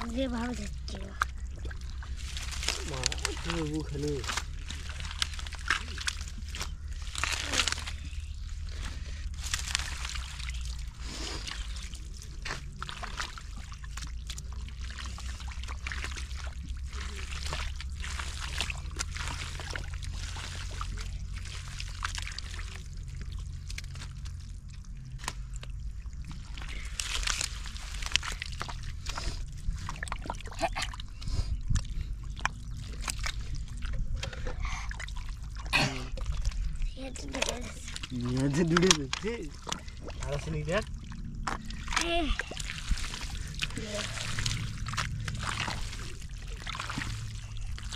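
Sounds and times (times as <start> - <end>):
steady low hum: 0.0 - 47.9
water splashing and pouring: 0.0 - 47.9.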